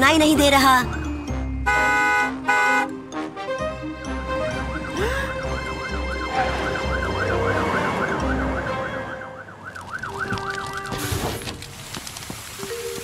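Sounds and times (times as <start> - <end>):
background music: 0.0 - 11.0
fire truck siren wailing: 1.7 - 11.6.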